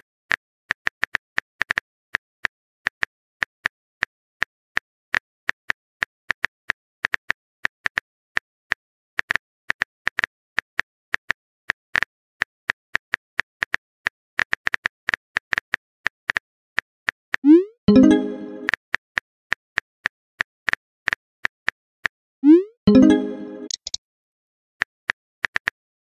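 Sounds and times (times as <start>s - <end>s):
phone keyboard clicks: 23.7s - 24.0s.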